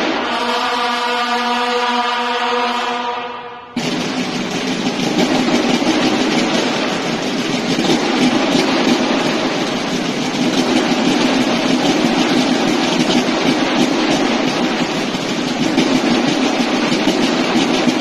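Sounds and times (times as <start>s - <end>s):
bugles holding a chord: 0.0s - 7.8s
snare drum roll: 0.0s - 18.0s.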